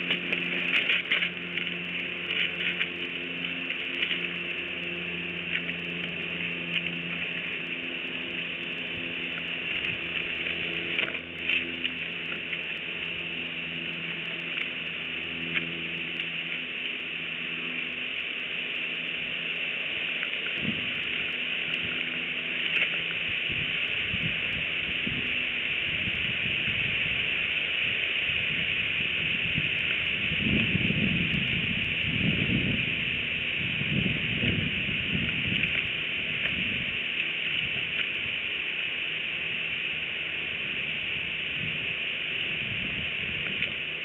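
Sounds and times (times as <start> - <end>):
low droning hum: 0.0 - 44.0
steady high hiss: 0.0 - 44.0
wind buffeting microphone: 20.6 - 21.1, 22.9 - 38.4, 40.6 - 44.0.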